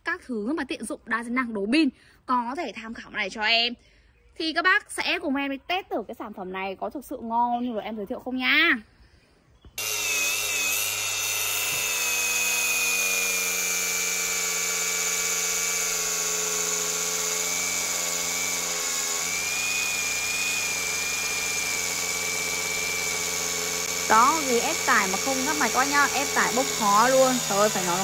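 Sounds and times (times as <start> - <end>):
angle grinder cutting wood: 9.8 - 28.0.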